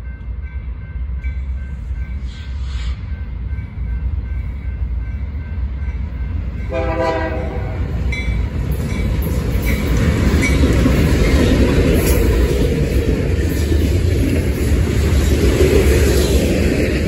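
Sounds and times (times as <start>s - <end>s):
diesel locomotive engines running: 0.0s - 17.0s
wheels rumbling on rails: 0.0s - 17.0s
train horn blast: 6.7s - 8.0s.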